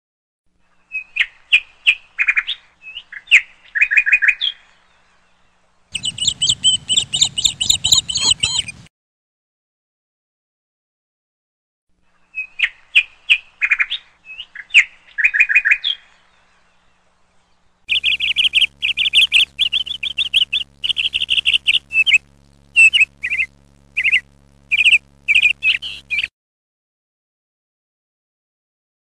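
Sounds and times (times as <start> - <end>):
parakeets chirping: 6.0 - 8.9, 17.9 - 26.3.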